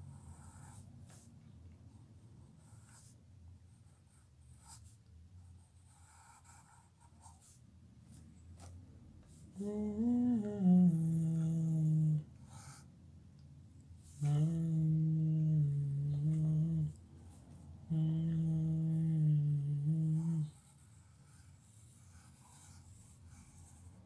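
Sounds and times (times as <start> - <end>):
pencil scratching on paper: 0.0 - 1.3, 2.5 - 8.7, 20.2 - 24.0
person humming: 9.5 - 12.3, 14.1 - 17.0, 17.9 - 20.7.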